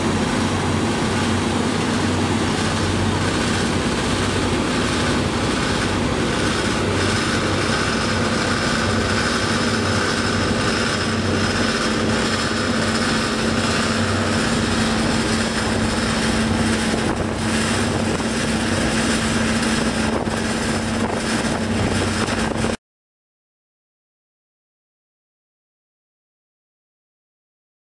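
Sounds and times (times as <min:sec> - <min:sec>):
ship engine drone: 0:00.0 - 0:22.8
wind on microphone: 0:00.0 - 0:22.8.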